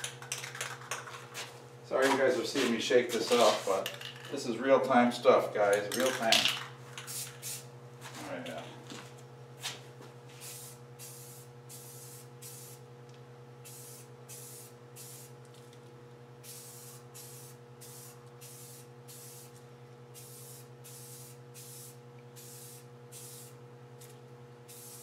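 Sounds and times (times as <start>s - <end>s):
spray can hissing: 7.0s - 7.7s, 10.4s - 12.8s, 13.6s - 15.4s, 16.4s - 19.6s, 20.2s - 24.1s, 24.7s - 25.0s.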